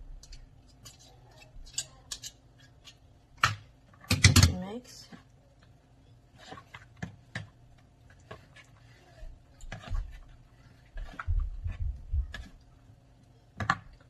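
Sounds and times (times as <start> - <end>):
dull low thumps: 11.3 - 12.4.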